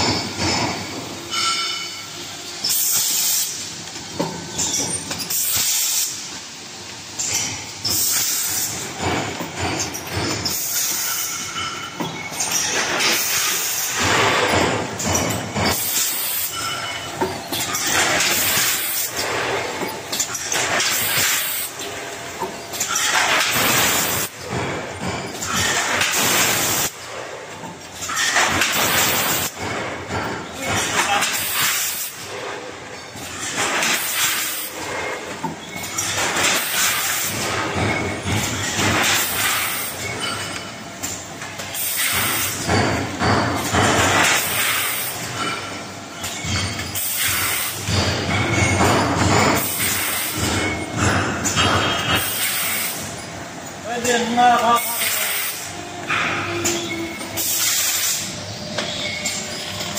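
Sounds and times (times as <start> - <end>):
machine mechanical clatter: 0.0 - 1.9, 2.6 - 59.9
packing machine pneumatic hissing: 2.6 - 8.9, 10.2 - 11.4, 12.4 - 16.6, 17.5 - 21.9, 22.8 - 24.4, 25.4 - 27.0, 28.4 - 29.6, 41.6 - 42.7, 46.9 - 48.2, 49.5 - 53.2.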